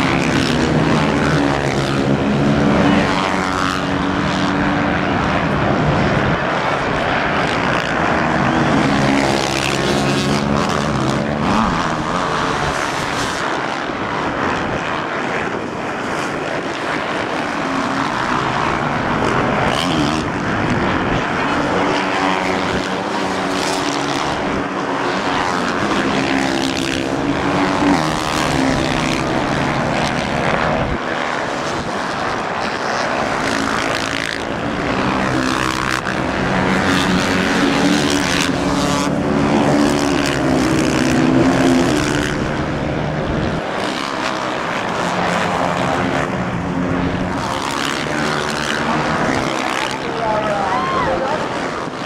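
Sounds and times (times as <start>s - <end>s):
dirt bike engines revving: 0.0s - 52.0s.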